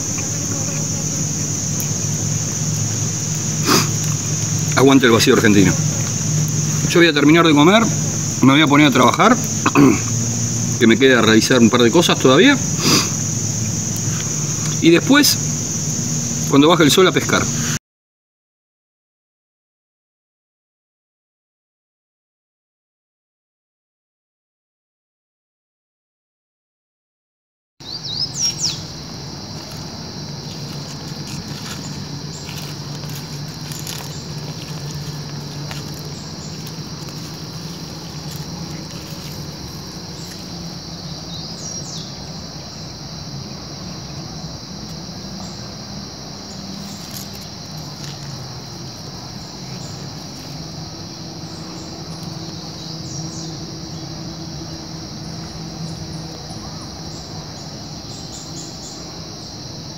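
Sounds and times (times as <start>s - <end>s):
low steady hum: 0.0s - 16.6s
insects chirring: 0.0s - 17.8s, 27.8s - 59.9s.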